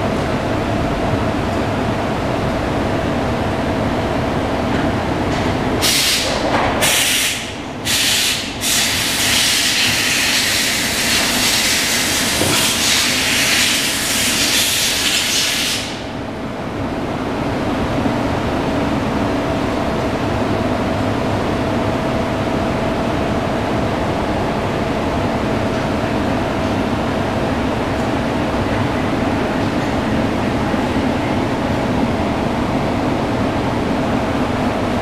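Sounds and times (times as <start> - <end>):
loud hiss: 5.8 - 16.0.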